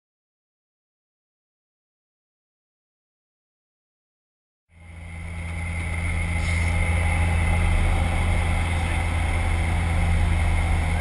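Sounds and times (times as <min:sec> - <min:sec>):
airplane engines droning in cabin: 0:04.7 - 0:11.0.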